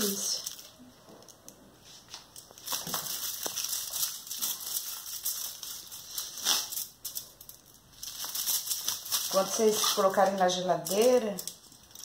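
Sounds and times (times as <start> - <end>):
knife scraping through sugary candy: 3.8 - 7.0, 8.8 - 10.4.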